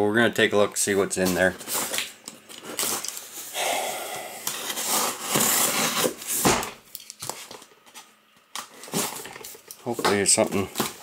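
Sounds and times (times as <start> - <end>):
cardboard rustling and scraping: 0.9 - 3.5, 4.5 - 6.7.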